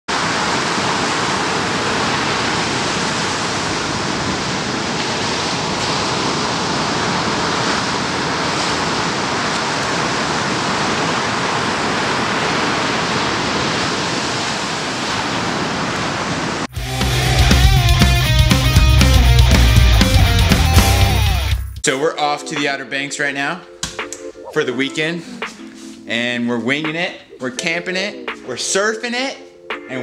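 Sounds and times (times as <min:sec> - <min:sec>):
small waves breaking: 0:00.1 - 0:16.7.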